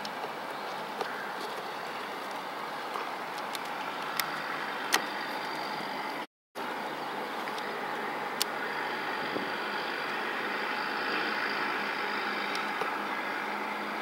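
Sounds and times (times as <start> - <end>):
outdoor background noise: 0.0 - 14.0.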